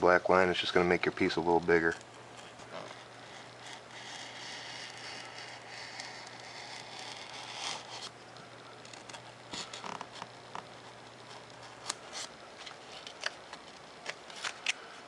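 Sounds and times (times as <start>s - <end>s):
knife cutting foam sheet: 2.4s - 8.1s.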